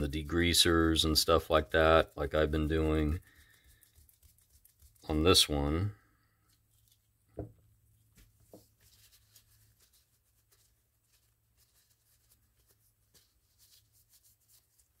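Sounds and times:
soft ticks and handling rustles: 6.4s - 7.2s.

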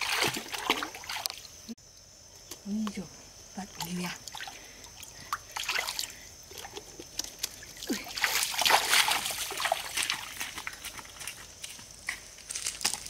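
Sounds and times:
feet wading through water: 0.0s - 1.4s, 4.3s - 11.5s
stones clicking underfoot: 9.8s - 13.0s.

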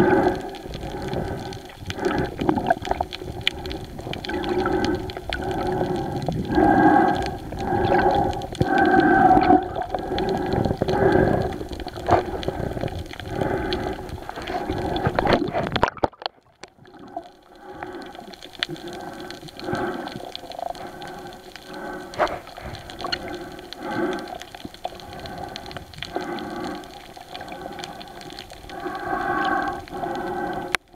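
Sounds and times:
muffled underwater sloshing: 0.0s - 30.9s.

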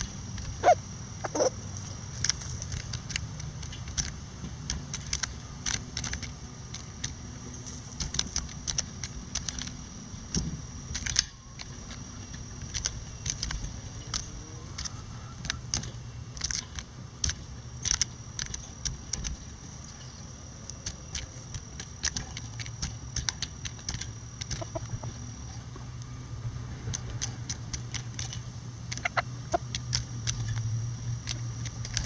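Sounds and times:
chickens beak tapping: 0.0s - 7.2s, 7.9s - 20.0s, 20.7s - 25.8s, 26.9s - 32.0s
steady low hum: 0.0s - 32.0s.

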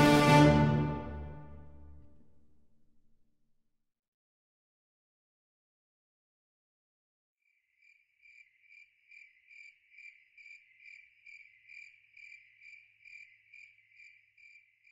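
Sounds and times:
faint cricket chirping: 7.4s - 14.9s.

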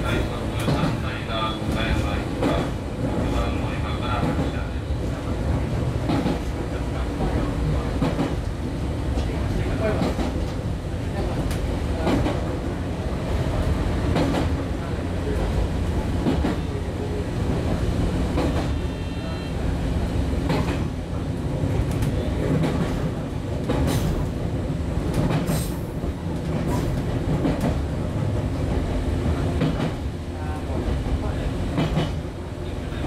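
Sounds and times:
wheels clacking over rail joints: 0.0s - 3.4s, 20.4s - 30.1s
train wheels rumbling on track: 0.0s - 33.0s.

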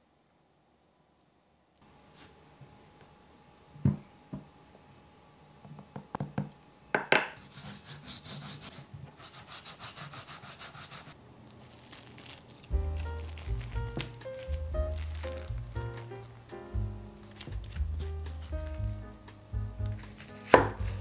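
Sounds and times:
salt scrubbed over pumpkin skin: 7.4s - 16.3s, 17.2s - 19.0s, 20.0s - 21.0s.

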